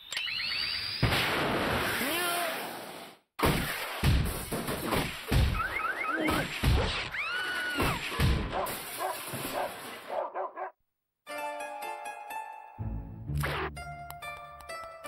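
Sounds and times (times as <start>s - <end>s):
cartoon crashes and thumps: 1.0s - 2.1s, 3.4s - 9.7s.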